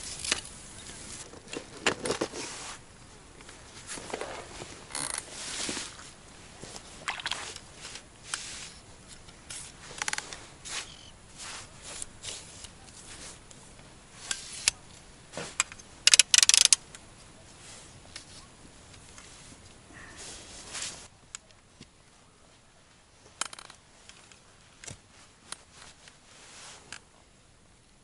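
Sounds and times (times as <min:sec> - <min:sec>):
fishing rod handling scrapes: 0:00.1 - 0:02.8, 0:03.8 - 0:13.5, 0:14.2 - 0:16.8.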